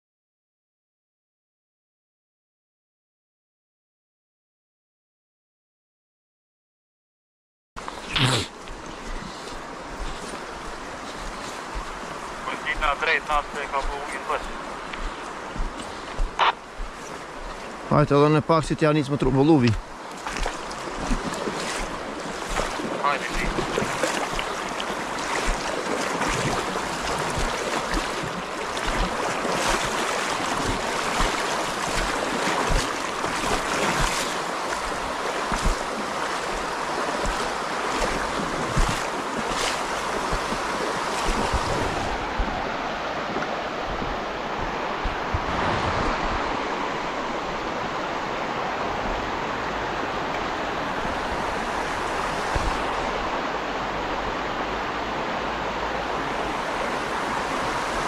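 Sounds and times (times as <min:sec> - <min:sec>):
river water rushing over stones: 0:07.8 - 0:58.0
wind rumble on microphone: 0:40.0 - 0:54.9.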